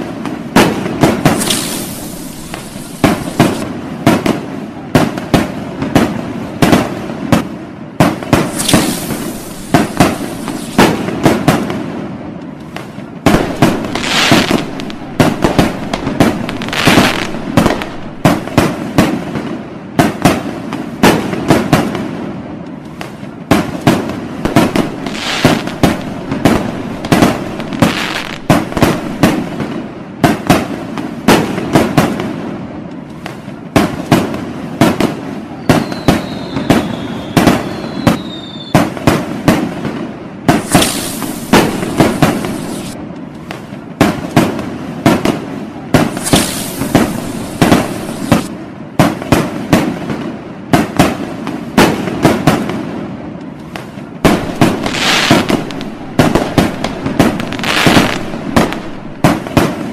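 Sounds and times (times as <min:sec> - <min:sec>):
firework crackle: 0:00.0 - 0:59.9
firework shells bursting: 0:01.1 - 0:03.7, 0:08.2 - 0:11.6, 0:13.2 - 0:19.2, 0:23.8 - 0:29.9, 0:40.5 - 0:43.0, 0:46.0 - 0:48.5, 0:54.2 - 0:59.9
spark fountains hissing: 0:01.3 - 0:03.6, 0:08.4 - 0:11.0, 0:13.3 - 0:18.6, 0:24.5 - 0:29.6, 0:40.6 - 0:43.0, 0:46.1 - 0:48.5, 0:54.3 - 0:59.4
falling whistle: 0:35.6 - 0:38.8.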